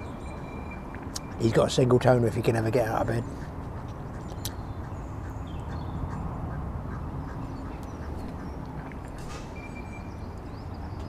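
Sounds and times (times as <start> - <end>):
high electronic beep: 9.6 - 10.1.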